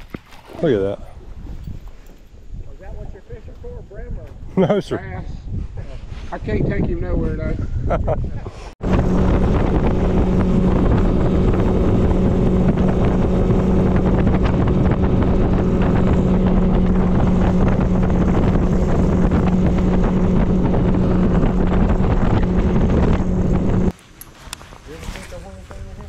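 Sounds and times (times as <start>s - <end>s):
wind buffeting microphone: 0.0s - 23.9s
outboard motor droning: 8.8s - 23.9s.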